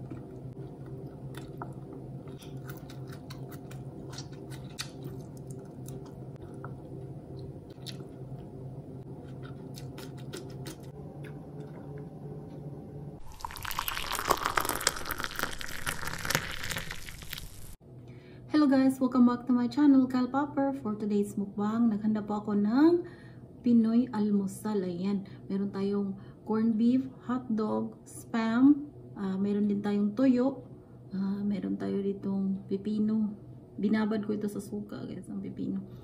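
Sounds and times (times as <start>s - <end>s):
wet chewing and smacking: 0.0s - 8.5s, 9.1s - 12.1s, 13.2s - 17.8s
low hum: 0.0s - 27.6s.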